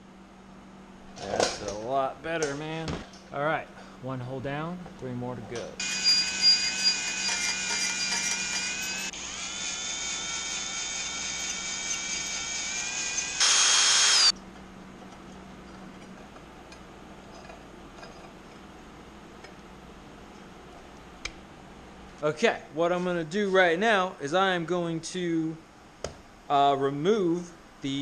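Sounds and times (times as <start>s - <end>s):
cordless drill boring metal: 5.8s - 14.3s.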